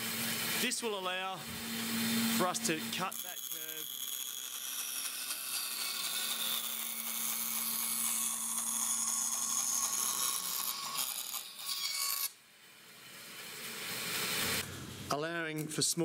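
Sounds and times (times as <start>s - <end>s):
bandsaw blade cutting wood: 0.0s - 14.6s
bandsaw motor hum: 0.0s - 14.7s.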